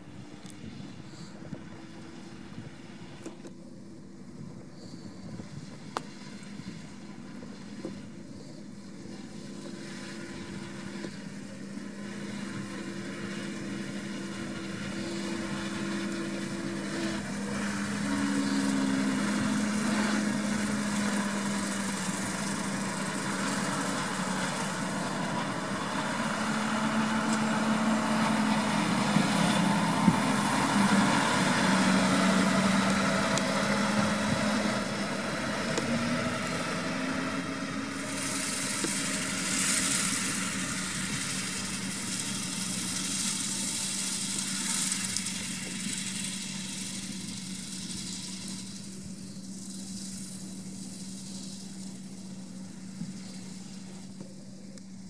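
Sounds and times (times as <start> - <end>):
tractor diesel engine running: 0.0 - 55.0.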